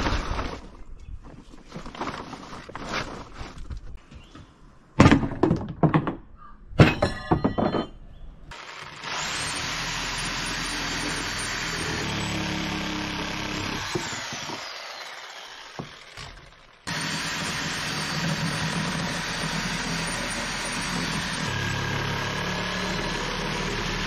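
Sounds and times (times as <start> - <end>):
loud thumps and knocks: 5.0 - 6.2, 13.8 - 14.7
circular saw cutting timber: 8.5 - 24.0.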